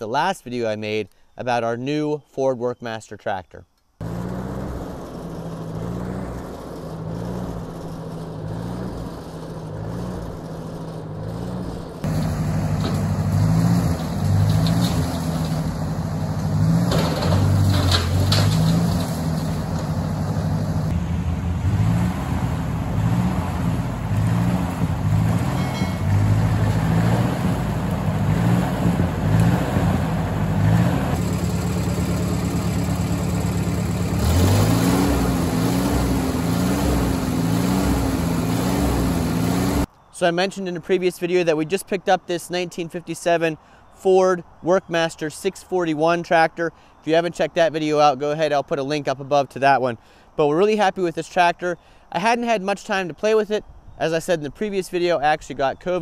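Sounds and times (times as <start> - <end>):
tractor engine running: 4.0 - 39.9.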